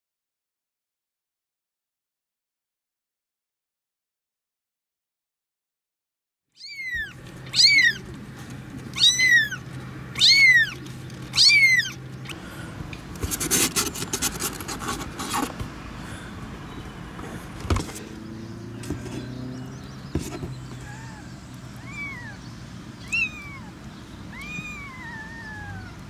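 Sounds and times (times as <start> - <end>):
kitten mewing: 6.6 - 8.2, 8.9 - 9.6, 10.2 - 12.4, 23.0 - 26.0
rustling and scraping in box: 13.0 - 15.8, 17.2 - 18.1, 18.8 - 19.4, 20.0 - 20.8.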